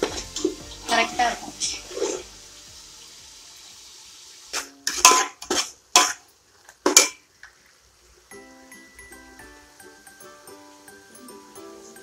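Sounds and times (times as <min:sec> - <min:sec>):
food sizzling: 0:00.0 - 0:12.0
metal spatula scraping pot: 0:04.6 - 0:06.2.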